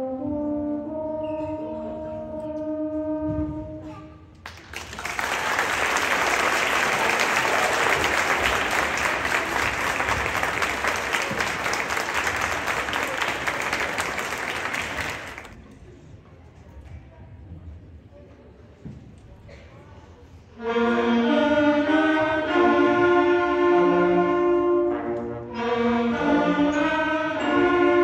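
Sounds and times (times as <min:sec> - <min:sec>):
audience applause: 0:04.4 - 0:15.6.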